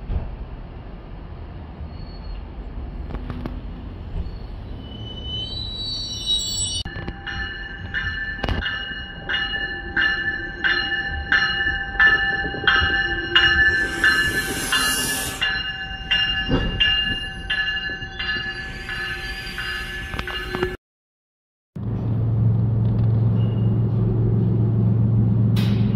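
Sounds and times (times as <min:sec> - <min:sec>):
train rumble: 0:00.0 - 0:20.8, 0:21.8 - 0:25.9
train bell ringing: 0:04.6 - 0:20.8
air hiss: 0:13.6 - 0:15.6.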